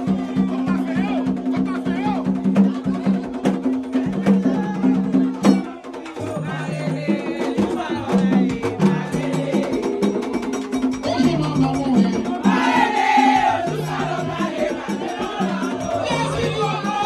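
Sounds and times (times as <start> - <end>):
sharp clacking percussion: 7.4 - 17.0.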